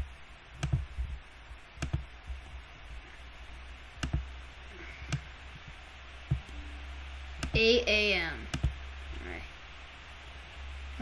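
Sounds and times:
low hum and faint hiss: 0.0 - 11.0
computer mouse clicks: 0.6 - 0.9, 1.8 - 2.1, 4.0 - 4.3, 5.1 - 6.6, 7.4 - 7.6, 8.5 - 8.8.

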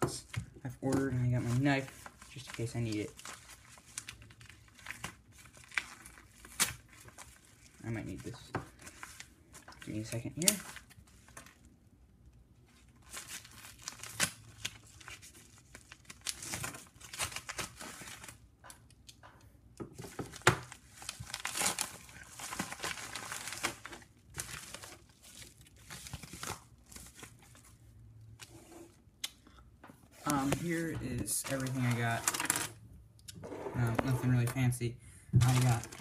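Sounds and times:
paper mailer tearing and crinkling: 0.9 - 9.3, 13.0 - 18.4, 20.3 - 27.6, 30.2 - 32.8, 33.8 - 34.6, 35.4 - 36.0.

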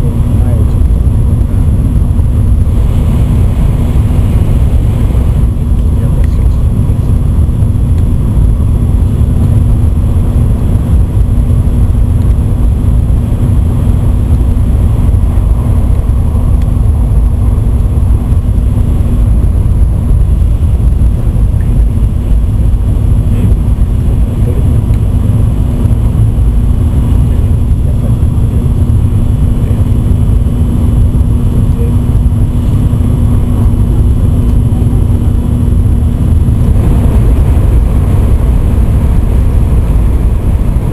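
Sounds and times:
train cabin low rumble: 0.0 - 40.9.

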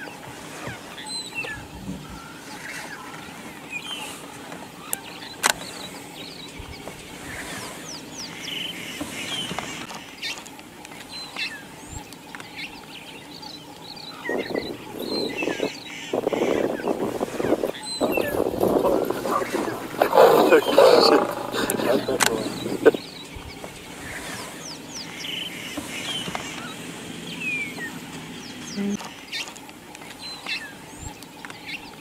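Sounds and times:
birds chirping: 0.0 - 32.0
lion growling: 14.4 - 23.0.

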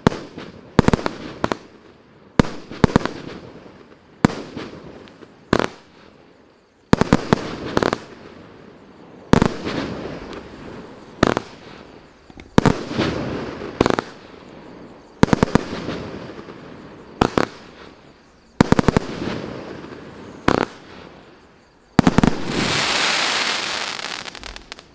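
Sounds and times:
fireworks bangs with hiss: 0.0 - 24.9
steady hiss of sparks: 0.0 - 24.9.

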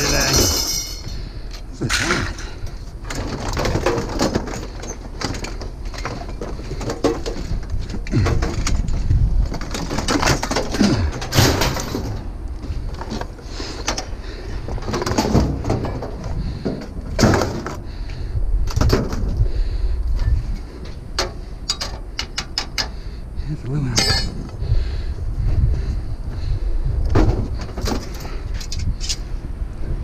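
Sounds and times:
scrap metal knocks and clanks: 0.0 - 18.0, 20.2 - 23.0, 24.0 - 24.6
steady low rumble: 0.0 - 30.0.

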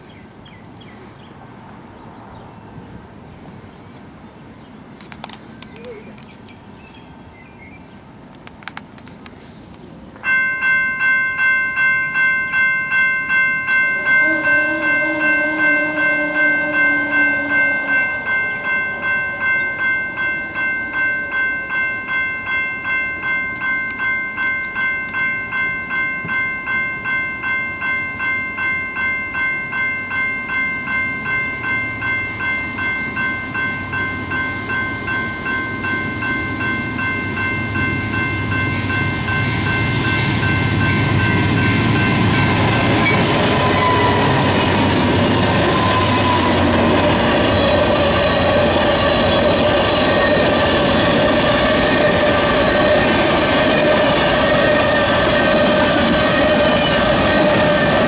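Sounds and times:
crossing warning bell ringing: 10.2 - 58.0
lower warning tone: 13.8 - 21.7
train rumble: 30.6 - 58.0.

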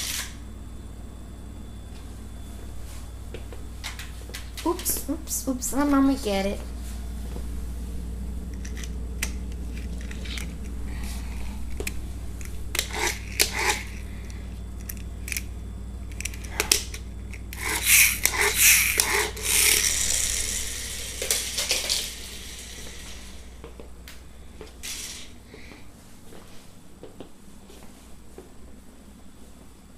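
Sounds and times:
steady low hum: 0.0 - 29.9
toy car clattering on wood floor: 17.6 - 22.7.

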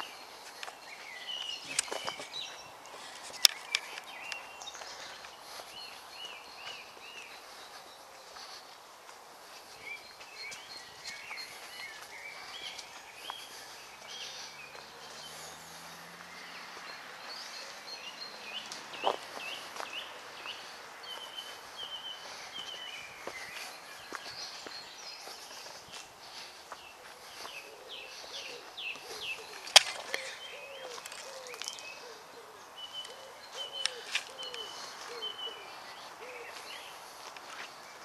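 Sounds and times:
footsteps on dirt path: 0.0 - 38.0
songbirds singing: 0.0 - 38.0.

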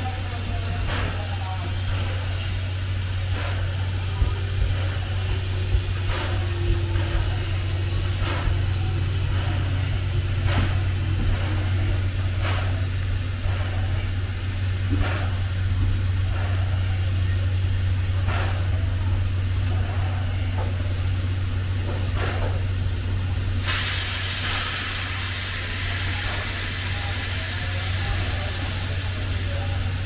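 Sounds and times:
steam locomotive low hum: 0.0 - 30.0
short hiss of steam: 23.6 - 29.8.

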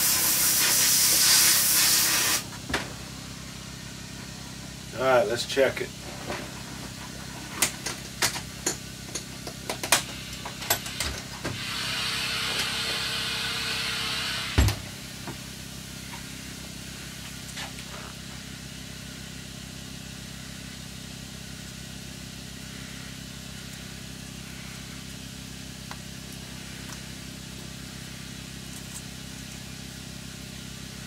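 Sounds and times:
shop machinery humming: 0.0 - 31.0.

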